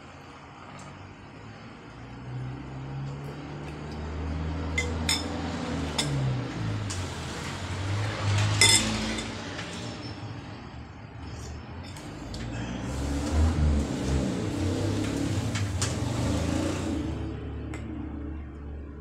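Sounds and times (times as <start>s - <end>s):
spoon clinking on ceramic bowl: 4.8s - 5.4s.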